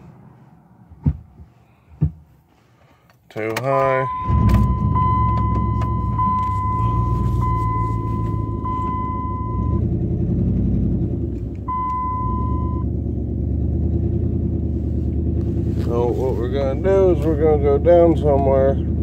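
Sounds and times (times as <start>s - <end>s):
high electronic warning beeps: 4.0s - 9.8s, 11.7s - 12.8s
truck engine running: 4.1s - 19.0s.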